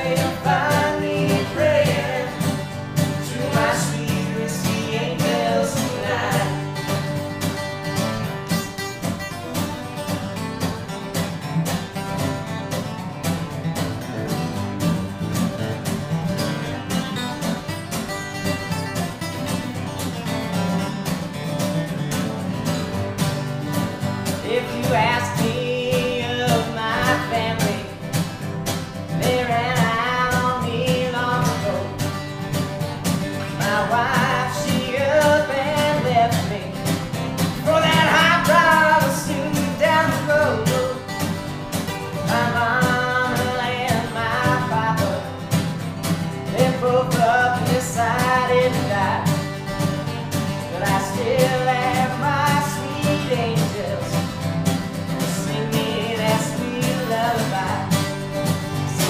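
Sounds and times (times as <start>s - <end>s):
person singing: 0.0s - 7.2s, 24.3s - 28.4s, 29.0s - 32.2s, 33.3s - 41.4s, 42.1s - 45.5s, 46.4s - 49.6s, 50.6s - 54.3s, 55.2s - 59.0s
acoustic guitars strumming: 0.0s - 59.0s.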